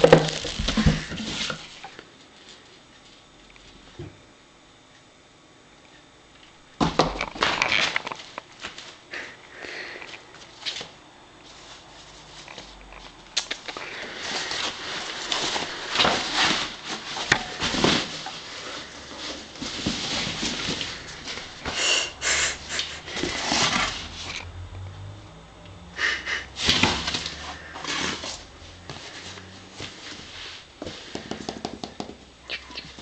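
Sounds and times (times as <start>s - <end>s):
cardboard rustling and scraping: 0.0s - 1.8s, 14.0s - 21.8s, 23.1s - 24.4s.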